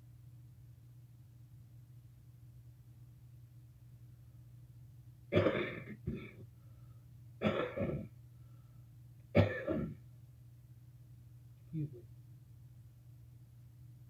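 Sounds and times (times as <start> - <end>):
person coughing: 5.3 - 6.4, 7.4 - 8.1, 9.3 - 10.0.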